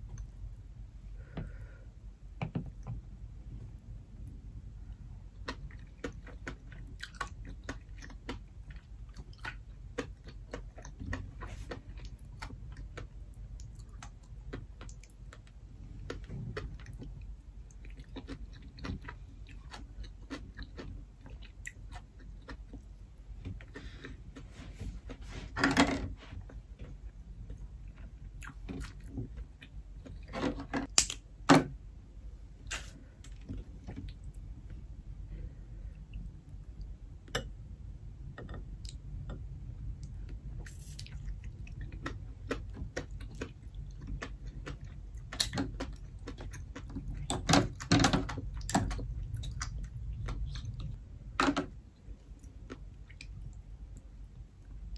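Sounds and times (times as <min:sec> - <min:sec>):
person chewing wetly: 0:05.3 - 0:24.5, 0:27.0 - 0:30.3, 0:40.0 - 0:51.0, 0:52.2 - 0:54.0.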